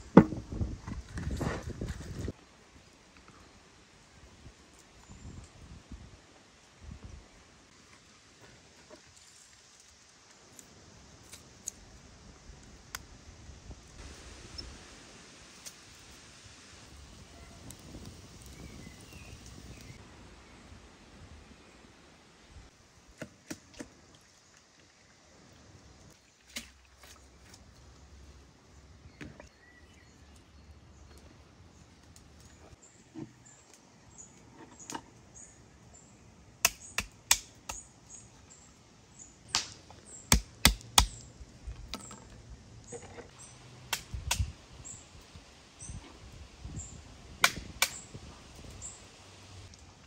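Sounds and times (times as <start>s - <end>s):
small birds chirping: 17.4s - 20.0s.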